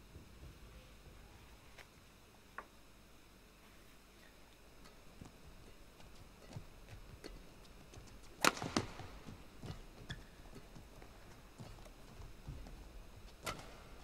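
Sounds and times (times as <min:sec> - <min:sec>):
players moving on court: 0:04.8 - 0:14.0
racket hitting shuttlecock: 0:08.4 - 0:09.8.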